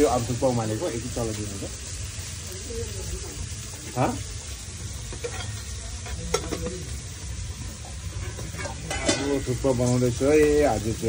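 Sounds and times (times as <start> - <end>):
noodles boiling in a pot: 0.0 - 11.0
stirring clinks and scrapes: 5.1 - 6.7.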